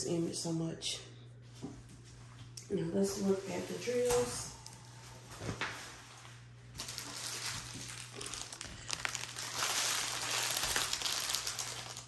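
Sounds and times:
plastic wrap crinkling: 3.1s - 12.0s.

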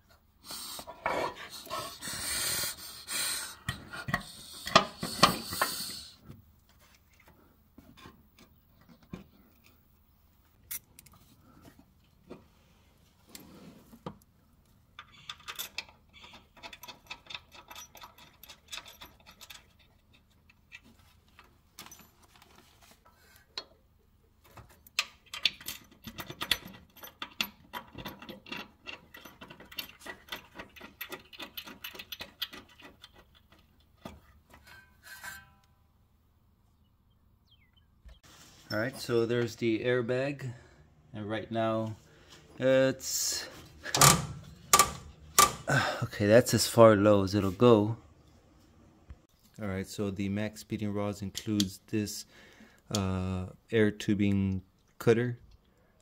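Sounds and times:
small metal clicks and rattling: 14.6s - 22.5s, 24.4s - 34.9s.

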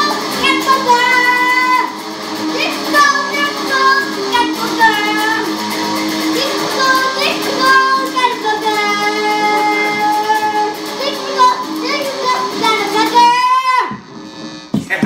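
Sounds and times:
girl singing into microphone: 0.0s - 1.9s, 6.5s - 13.9s.

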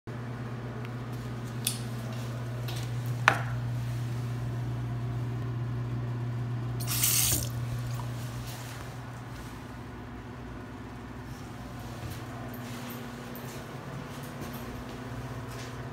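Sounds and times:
water from faucet into basin: 6.8s - 8.1s.

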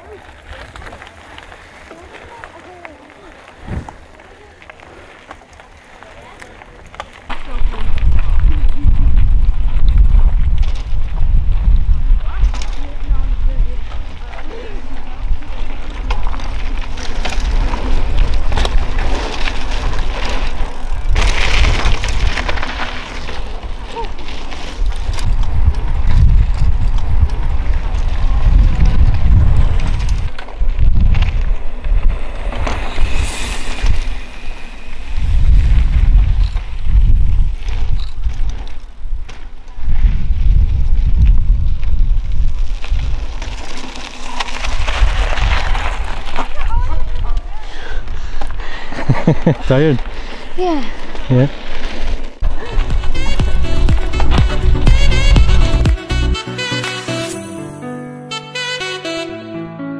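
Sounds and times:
scattered crackles: 0.0s - 56.2s
bike tyres crunching on dirt: 0.0s - 56.4s
wind rumbling on microphone: 3.4s - 4.2s, 6.7s - 55.9s
rough hiss: 32.2s - 36.0s.

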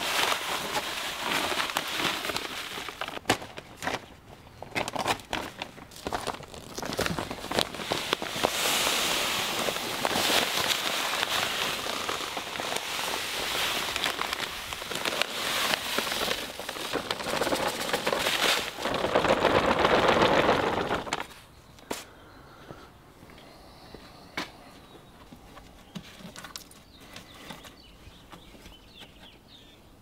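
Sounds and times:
granules pouring into hopper: 0.0s - 3.2s, 6.0s - 21.3s.

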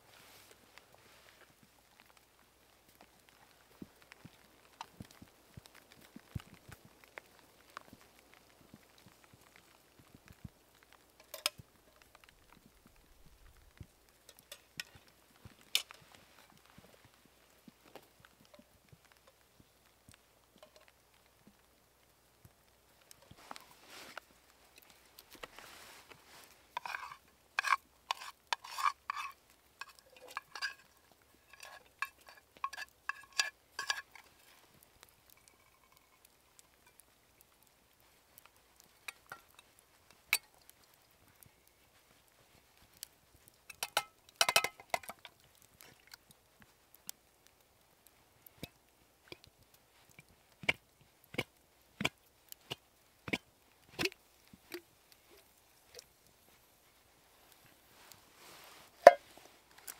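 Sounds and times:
plastic spoon scraping metal pots: 26.7s - 34.2s.

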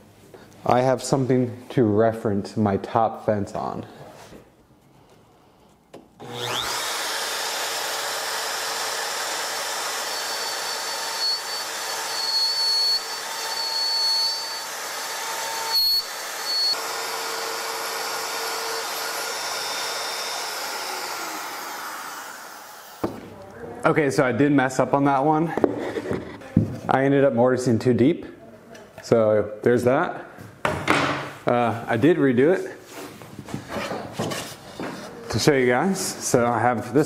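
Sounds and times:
router cutting wood: 6.2s - 23.2s.

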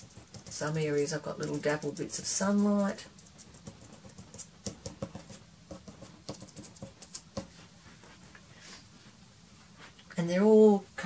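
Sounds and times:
pastel tapping on paper: 0.0s - 0.8s, 3.2s - 7.6s.

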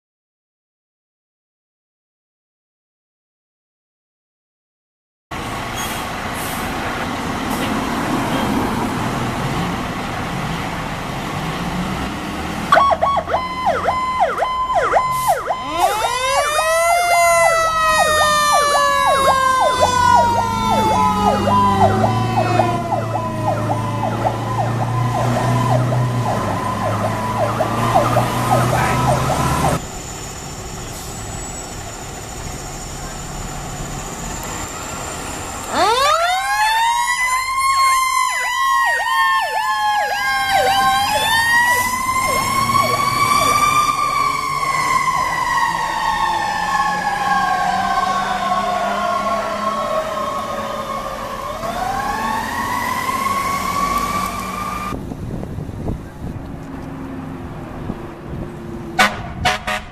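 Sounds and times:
fire engine rumbling: 5.3s - 59.9s
wailing siren: 12.6s - 29.8s, 35.6s - 55.0s
pulsing electronic siren: 12.7s - 29.8s, 35.6s - 55.0s.

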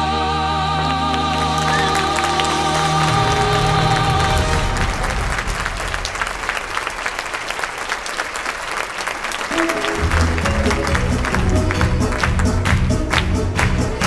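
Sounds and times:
music playing: 0.0s - 6.2s, 9.4s - 14.0s
large audience applauding: 0.8s - 14.0s.

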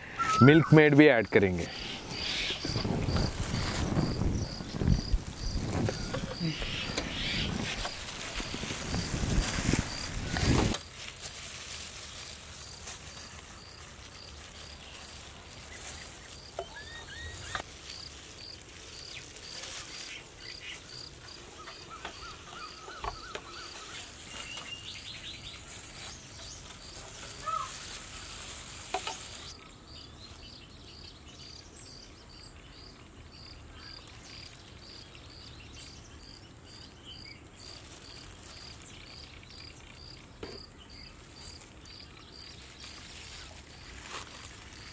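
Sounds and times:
bird calls: 0.0s - 10.4s, 15.6s - 17.6s, 19.0s - 28.2s
background hiss: 0.0s - 44.9s
cricket chirping: 0.2s - 10.6s, 32.3s - 44.9s.

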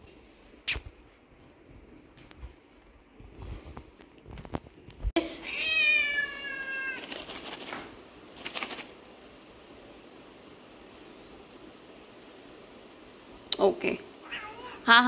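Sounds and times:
cat meowing: 5.4s - 7.0s, 14.2s - 14.9s.

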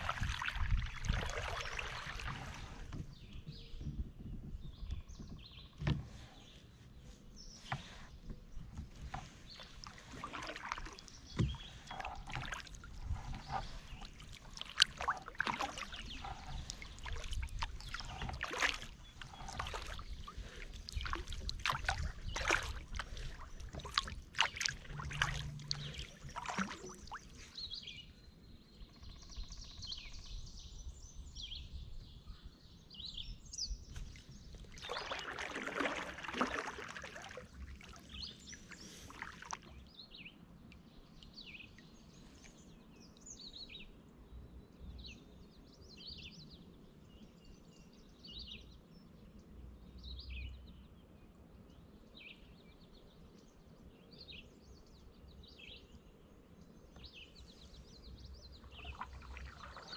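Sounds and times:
paddle swishing through water: 0.0s - 28.1s, 33.8s - 40.2s, 57.4s - 59.9s
birds chirping: 0.0s - 30.5s, 33.1s - 49.5s, 51.6s - 59.9s.

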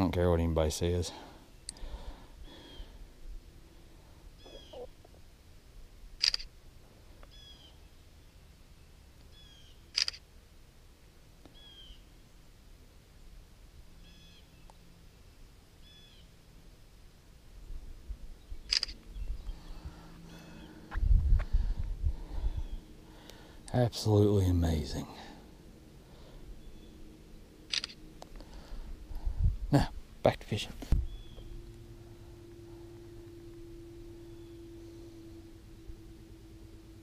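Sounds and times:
bird chirping: 4.4s - 5.1s, 7.2s - 10.0s, 11.4s - 12.1s, 14.0s - 15.2s, 15.8s - 16.4s, 18.3s - 20.9s, 26.2s - 28.4s, 31.0s - 35.8s
camera shutter clicks: 6.2s - 6.5s, 9.9s - 10.2s, 18.7s - 19.0s, 27.7s - 28.0s
low rumbling noise: 16.7s - 37.0s.

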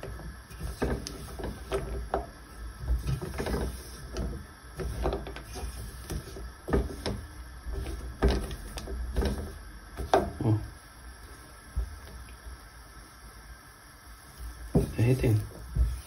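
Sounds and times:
spatula scraping saucepan: 3.0s - 10.2s.

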